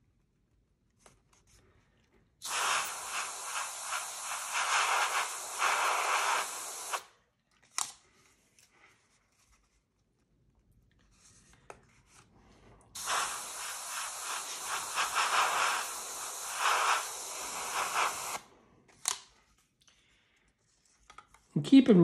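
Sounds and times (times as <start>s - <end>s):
airbrush spraying hiss: 2.4s - 7.1s, 13.0s - 18.4s.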